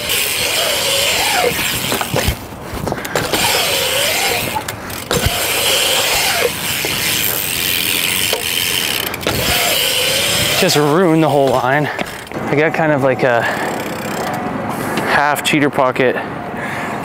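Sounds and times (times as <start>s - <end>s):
bike knocks: 0.0s - 12.4s
bike hub ticking: 0.0s - 12.5s, 13.4s - 15.0s
bike tyres rolling on concrete: 0.0s - 15.2s.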